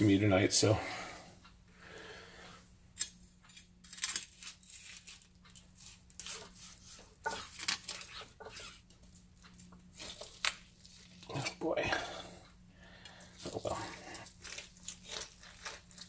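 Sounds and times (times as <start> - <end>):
knife scraping bone and board: 5.8 - 8.9, 10.0 - 10.6, 13.4 - 16.0.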